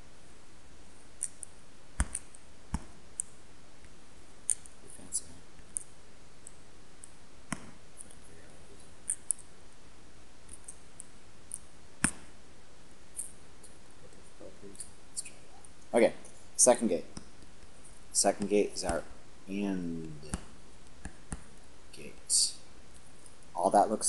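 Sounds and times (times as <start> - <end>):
faint steady hiss: 0.0 - 24.0
sharp computer clicks: 1.1 - 3.4, 4.4 - 4.8, 9.0 - 9.5.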